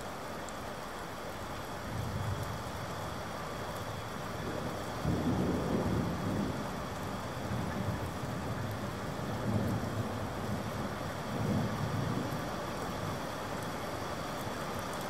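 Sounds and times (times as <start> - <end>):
steady rain: 0.0 - 15.0
low rumbling thunder: 4.4 - 12.4.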